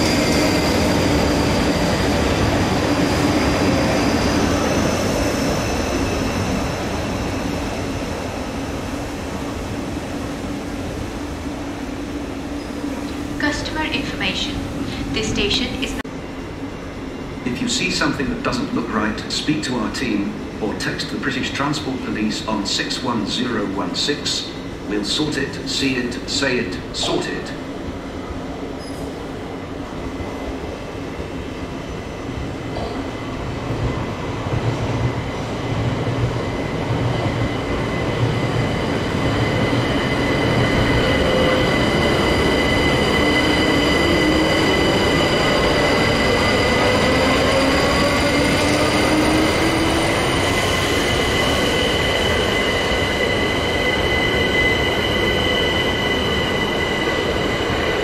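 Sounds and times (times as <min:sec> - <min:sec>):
train wheels squealing: 0:00.0 - 0:07.8, 0:28.7 - 0:29.3, 0:36.4 - 0:58.0
train running gear rumble: 0:26.8 - 0:58.0.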